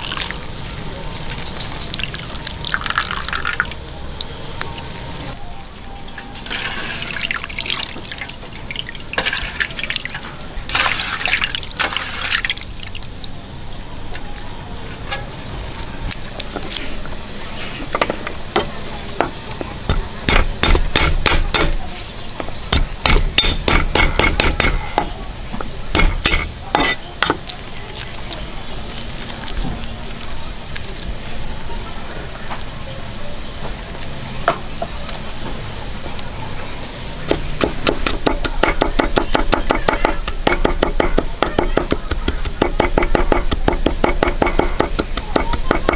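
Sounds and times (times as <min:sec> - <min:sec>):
water splashing and draining: 0:00.0 - 0:04.3, 0:06.4 - 0:13.5.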